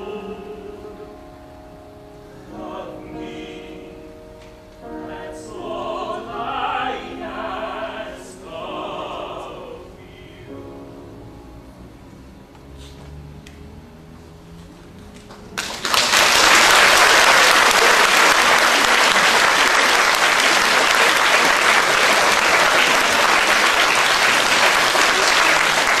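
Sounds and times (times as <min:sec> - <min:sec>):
audience applause: 0:15.2 - 0:26.0.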